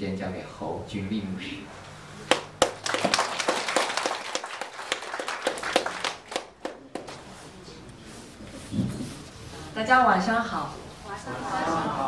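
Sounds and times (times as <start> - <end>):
congregation applauding: 2.3 - 7.2.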